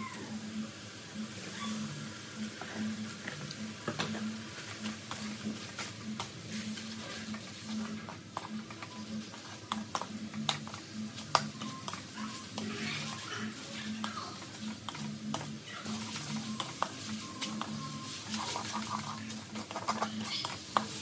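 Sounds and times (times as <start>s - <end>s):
faint background music: 0.0s - 21.0s.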